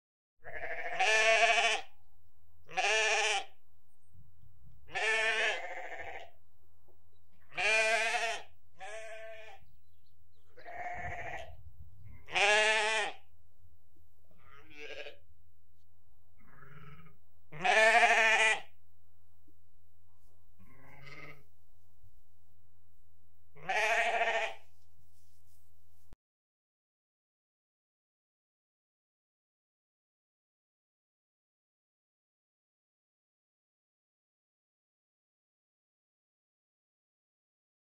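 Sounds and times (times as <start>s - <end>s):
rams bleating: 0.4s - 1.9s, 2.7s - 3.6s, 4.9s - 6.4s, 7.4s - 9.7s, 10.4s - 13.3s, 14.3s - 15.2s, 16.4s - 18.8s, 20.6s - 21.5s, 23.6s - 24.7s.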